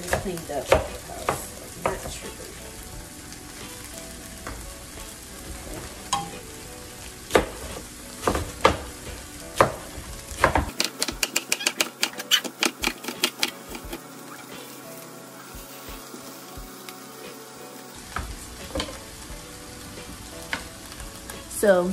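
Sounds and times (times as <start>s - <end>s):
frying pan sizzling: 0.0s - 21.9s
knife chopping cabbage: 10.4s - 14.0s.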